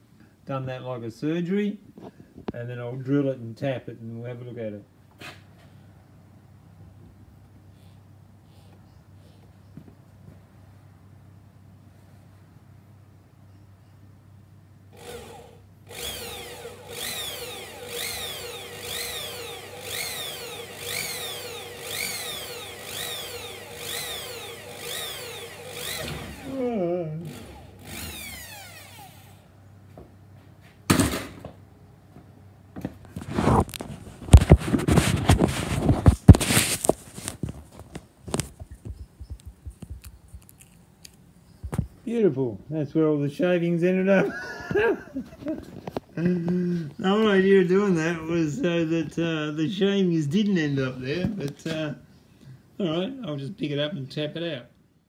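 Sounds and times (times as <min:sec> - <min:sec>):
electric drill boring metal: 0:14.9 - 0:29.5.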